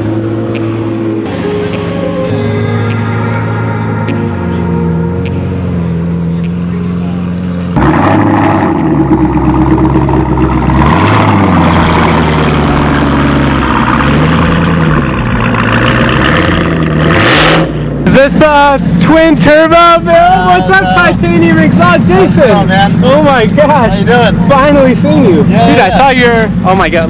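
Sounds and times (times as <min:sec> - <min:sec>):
sports car engine revving: 0:00.0 - 0:19.5
car engine running: 0:00.0 - 0:27.0.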